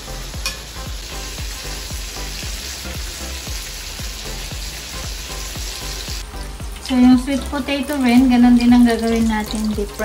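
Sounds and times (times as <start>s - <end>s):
battered food deep-frying in oil: 0.0s - 10.0s.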